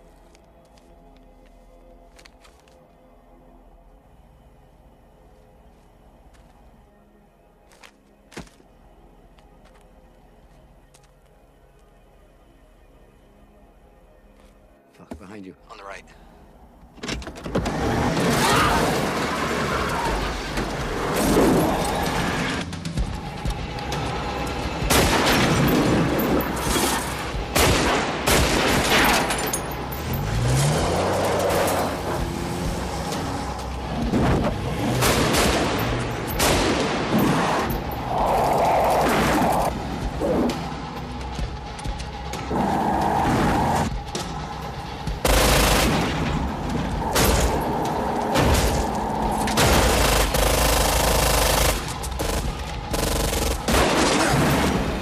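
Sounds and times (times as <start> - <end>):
vehicle engine revving: 29.9 - 41.0
gunshots: 45.2 - 46.5, 49.5 - 55.0.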